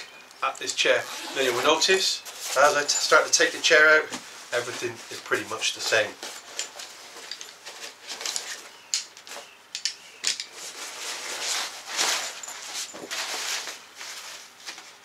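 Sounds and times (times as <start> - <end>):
fabric sack rustling: 10.6 - 15.0.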